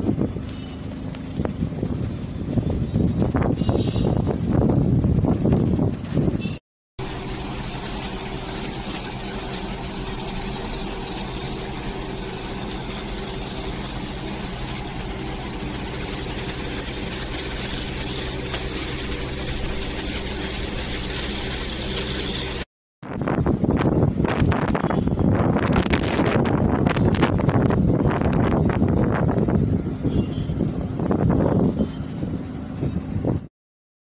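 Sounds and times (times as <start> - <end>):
low motor hum: 0.0 - 33.5
wind buffeting microphone: 1.2 - 6.6, 23.0 - 33.5
heavy rain falling: 7.0 - 22.6.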